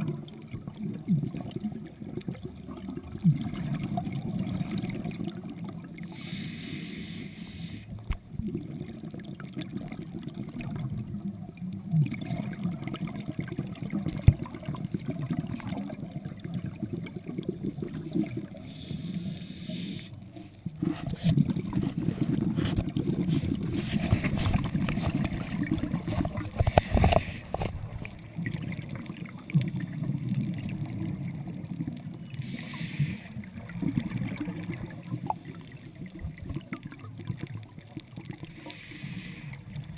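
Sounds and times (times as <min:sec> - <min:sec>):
underwater rumble with crackling: 0:00.0 - 0:39.9
regulator breathing bubbles: 0:16.7 - 0:31.1, 0:32.2 - 0:37.0.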